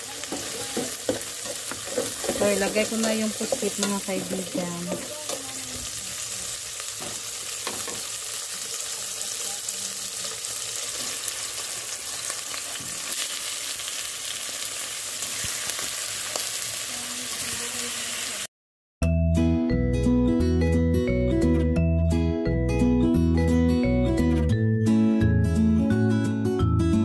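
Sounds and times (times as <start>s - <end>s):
food sizzling in hot oil: 0.0s - 18.5s.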